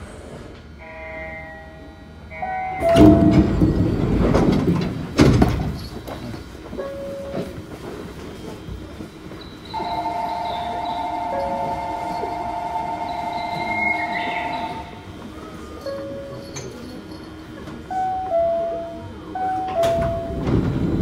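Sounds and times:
monorail running noise: 0.0s - 21.0s
faint steady tones: 8.4s - 20.6s
steady whine: 9.7s - 15.8s.

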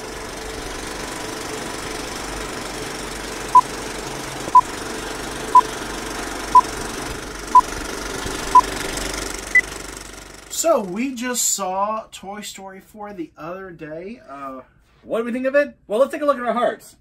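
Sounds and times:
movie projector rattle: 0.0s - 10.5s.

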